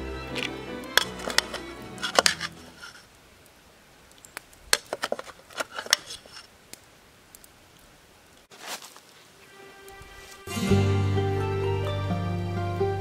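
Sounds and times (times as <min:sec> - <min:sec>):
metal ladle scraping a pot: 0:01.0 - 0:03.0.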